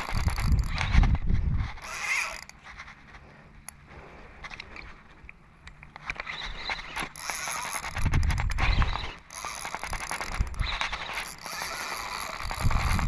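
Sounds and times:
fishing reel clicking and ratcheting: 0:00.0 - 0:02.6, 0:06.0 - 0:13.0.

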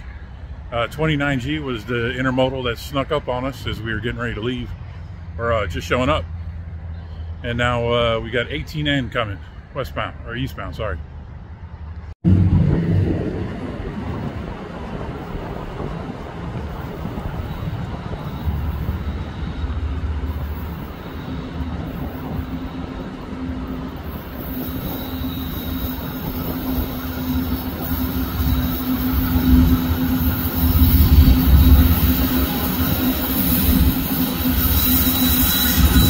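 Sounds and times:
diesel locomotive engines droning: 0:00.0 - 0:36.0
train wheels on rails: 0:13.8 - 0:36.0.

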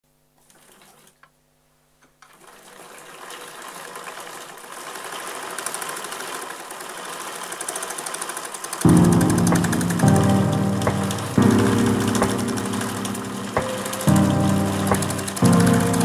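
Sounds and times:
pedal-driven wood lathe clatter: 0:02.3 - 0:08.8.

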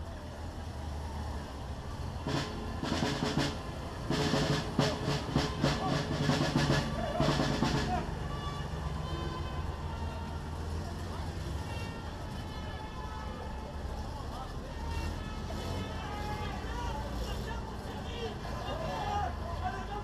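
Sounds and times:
low rumble of vehicle engines: 0:00.0 - 0:20.0
snare drums marching cadence: 0:02.2 - 0:08.3.

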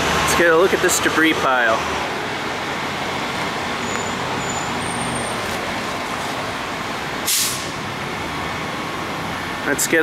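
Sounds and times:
road traffic and engines: 0:00.0 - 0:10.0
short hiss: 0:07.3 - 0:07.7.

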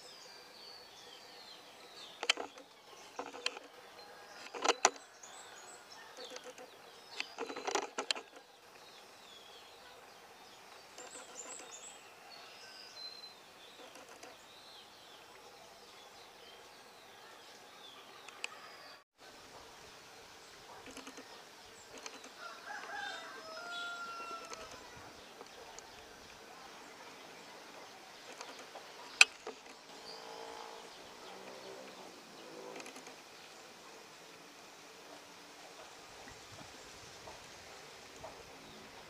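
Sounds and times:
birds chirping and calling: 0:00.0 - 0:19.0, 0:20.4 - 0:33.3
outdoor hiss: 0:14.4 - 0:28.2, 0:28.8 - 0:39.0.

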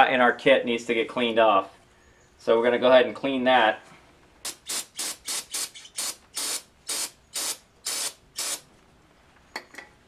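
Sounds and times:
aerosol spray hissing bursts: 0:04.5 - 0:08.6.

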